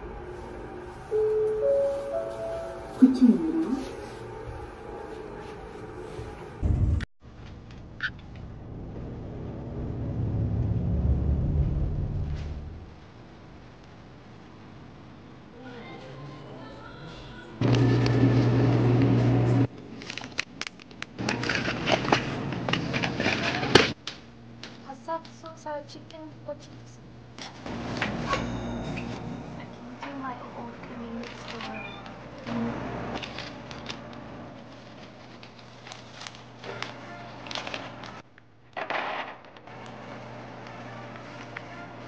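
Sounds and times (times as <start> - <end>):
quiet background music: 0.0 - 6.6, 39.7 - 42.0
loud low hum: 0.0 - 14.4, 17.6 - 19.7
plastic packages crinkling: 33.2 - 38.2.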